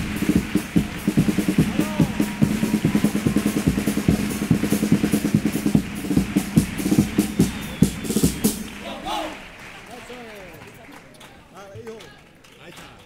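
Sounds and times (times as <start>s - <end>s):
bass drum beat: 0.0s - 8.9s
snare drum beat: 0.0s - 9.4s.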